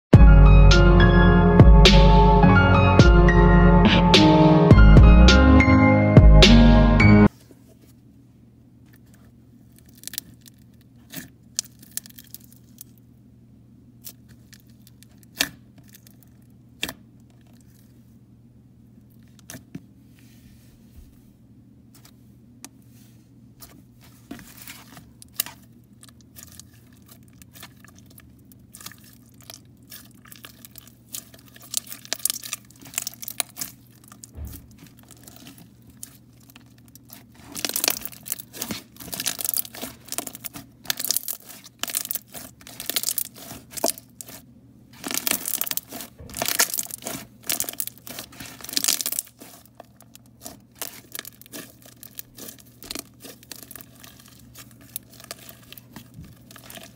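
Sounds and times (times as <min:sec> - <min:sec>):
slime crackling and popping: 0:09.7 - 0:13.0, 0:14.0 - 0:17.8, 0:24.4 - 0:56.9.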